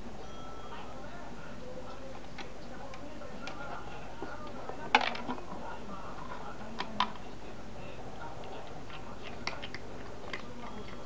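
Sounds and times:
kibble and claws clicking on plastic: 8.4s - 11.0s.

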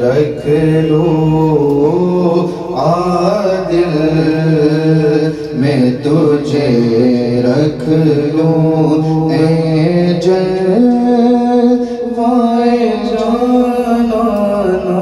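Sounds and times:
men singing unaccompanied: 0.0s - 15.0s.

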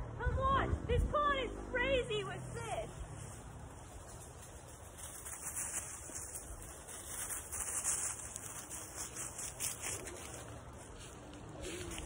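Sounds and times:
faint rustles: 2.9s - 12.0s.

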